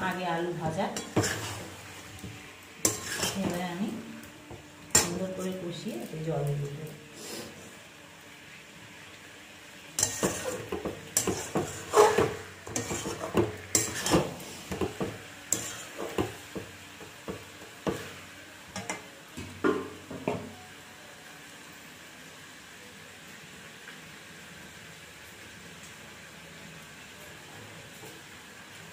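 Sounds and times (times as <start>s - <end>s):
metal spatula scraping a pot: 0.9s - 2.0s, 2.8s - 3.6s, 10.0s - 14.9s, 15.5s - 16.3s.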